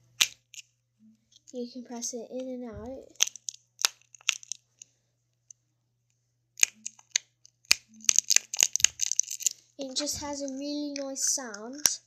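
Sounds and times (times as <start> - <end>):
plastic fidget clicks and pops: 6.6 - 10.0.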